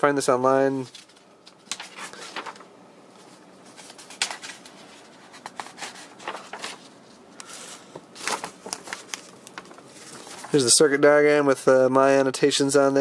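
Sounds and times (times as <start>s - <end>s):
paper pages rustling: 0.8s - 10.8s.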